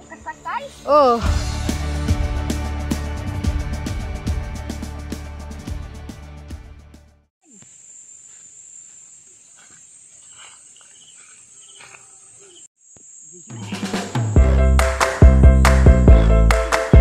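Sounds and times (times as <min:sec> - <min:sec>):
background music: 0:00.0 - 0:07.3, 0:13.7 - 0:17.0
faint insect chirps: 0:07.4 - 0:13.9.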